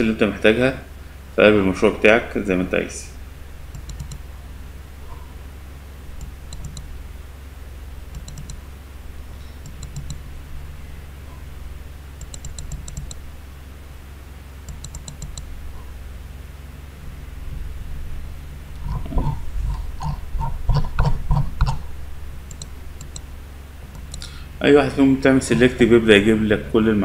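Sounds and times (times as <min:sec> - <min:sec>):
low steady hum: 0:00.0 - 0:27.0
computer mouse clicking: 0:03.7 - 0:04.3, 0:06.2 - 0:07.0, 0:08.1 - 0:08.6, 0:09.6 - 0:10.3, 0:12.2 - 0:13.2, 0:14.7 - 0:15.5, 0:22.5 - 0:23.3, 0:23.9 - 0:24.3.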